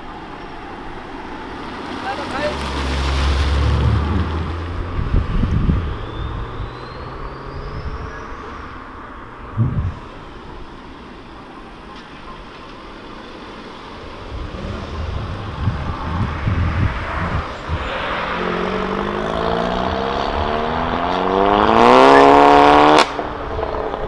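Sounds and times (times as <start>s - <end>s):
car exhaust burble passing: 1.4s - 24.0s
car accelerating hard: 2.1s - 8.8s, 14.0s - 24.0s.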